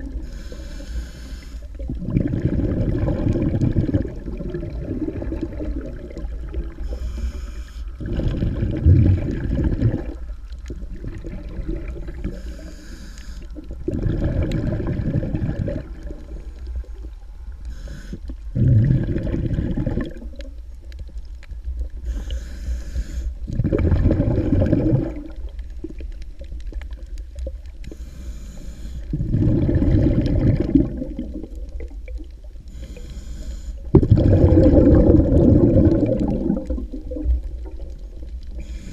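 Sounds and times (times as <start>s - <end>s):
snorkel breathing hiss: 0.0s - 1.8s, 6.7s - 8.1s, 12.2s - 13.7s, 17.6s - 18.5s, 22.0s - 23.5s, 27.8s - 29.6s, 32.6s - 34.0s, 38.5s - 38.9s
low underwater rumble: 0.0s - 38.9s
bubbling gurgle: 1.6s - 7.1s, 7.9s - 12.7s, 13.5s - 17.4s, 18.4s - 22.1s, 23.4s - 27.9s, 29.0s - 32.9s, 33.8s - 38.9s.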